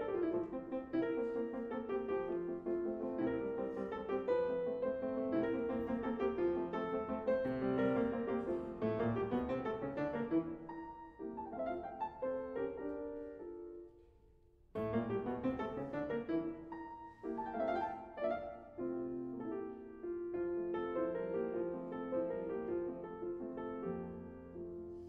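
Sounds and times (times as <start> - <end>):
slow piano music: 0.0 - 25.0.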